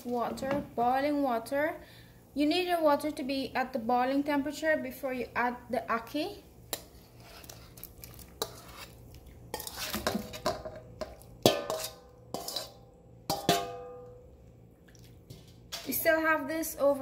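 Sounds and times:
metal spoon scraping steel bowl: 6.7 - 10.7, 11.4 - 13.7.

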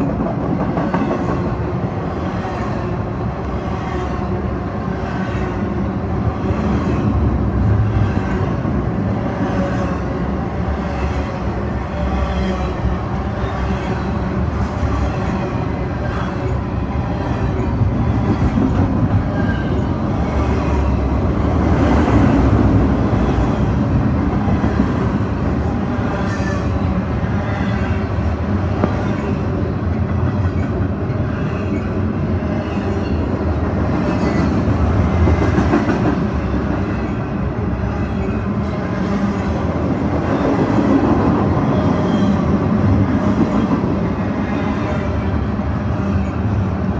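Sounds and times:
train wheels rumbling on rail: 0.0 - 46.9.

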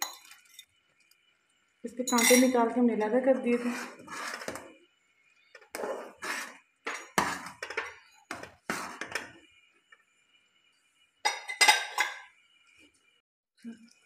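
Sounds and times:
metal spoon scraping saucepan: 2.0 - 4.8, 5.6 - 9.4.

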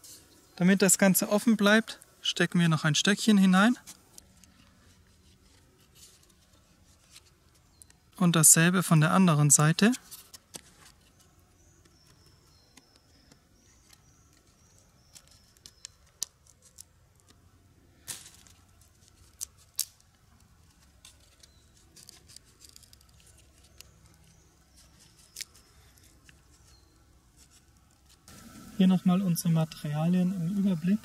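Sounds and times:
green wood clicking and cracking: 18.1 - 24.4.

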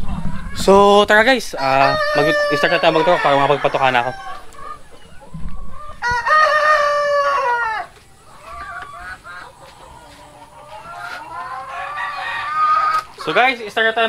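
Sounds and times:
chicken clucks: 0.0 - 14.0
rooster crowing: 1.6 - 4.5, 6.0 - 7.9, 11.1 - 13.1.

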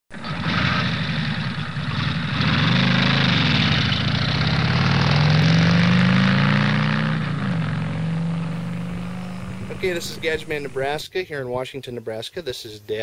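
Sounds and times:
vehicle engine revving: 0.2 - 11.0
steady rushing noise: 8.5 - 11.0.

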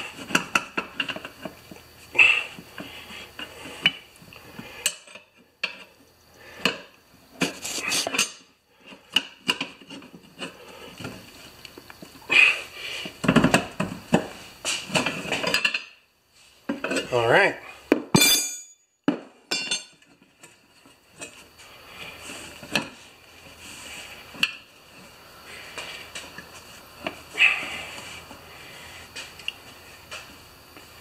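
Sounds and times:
tire iron clinking on steel rim: 18.2 - 18.9, 19.5 - 20.1.

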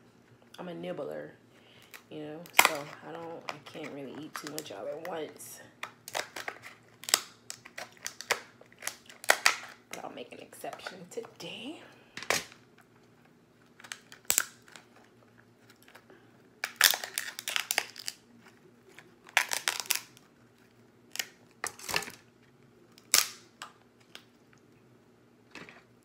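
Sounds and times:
crab shell cracking: 5.8 - 10.0, 13.6 - 18.2, 18.9 - 20.3, 21.1 - 22.2, 22.9 - 24.7.

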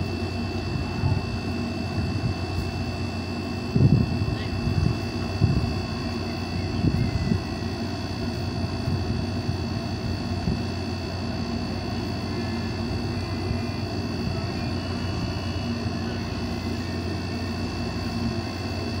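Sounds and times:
faint high whine: 0.0 - 19.0
machine drone: 0.0 - 19.0.

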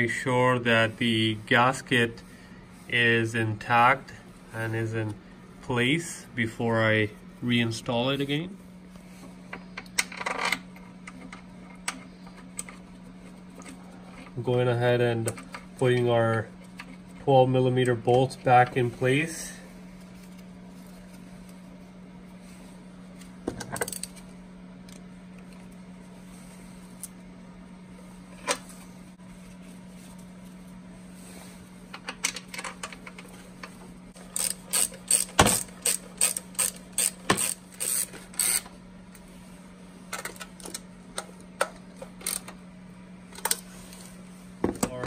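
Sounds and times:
steady low hum: 0.0 - 45.0
socket ratchet clicking: 34.3 - 38.7.

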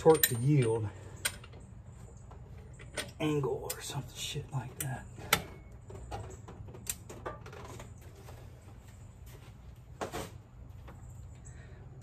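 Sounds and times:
tools clicking and knocking: 0.0 - 1.7
steady low hum: 0.0 - 12.0.

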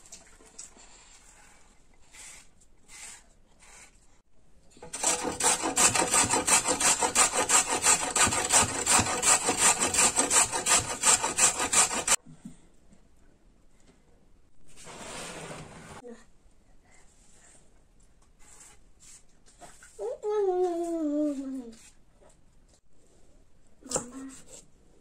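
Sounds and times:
carrot grating on metal grater: 4.8 - 12.2.

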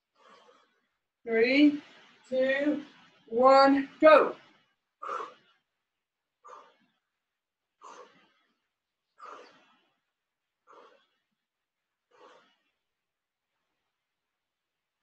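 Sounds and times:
woman's forceful breaths: 0.0 - 0.8, 5.0 - 5.6, 6.4 - 7.0, 7.8 - 10.0, 10.6 - 11.2, 12.1 - 12.8.

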